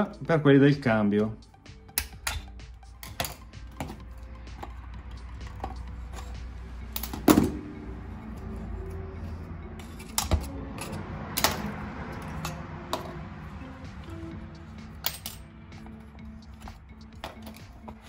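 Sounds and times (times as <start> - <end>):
faint background music: 0.0 - 18.0
metallic clicks and knocks: 1.9 - 7.6, 9.8 - 13.2, 14.9 - 15.9.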